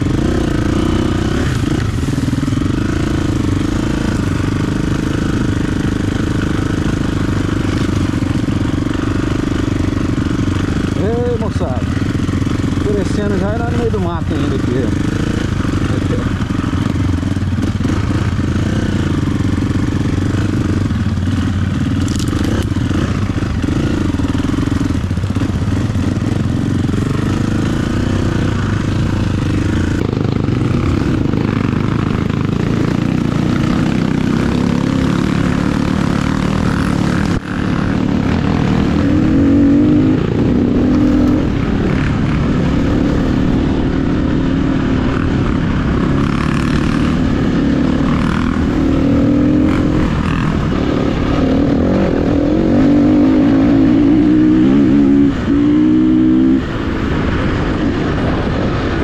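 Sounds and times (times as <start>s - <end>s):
dirt bike engine revving: 0.0s - 57.9s.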